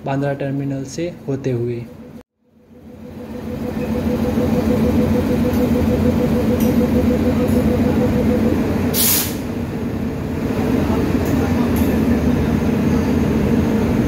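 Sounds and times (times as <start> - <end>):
electric locomotive hum: 1.6 - 14.0
train wheels rumbling on rails: 4.9 - 14.0
brief hiss: 9.0 - 9.4.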